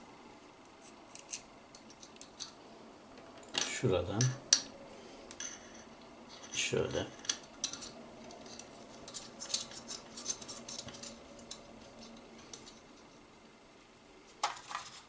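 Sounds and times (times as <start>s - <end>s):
small metal parts clicking: 7.2s - 12.8s.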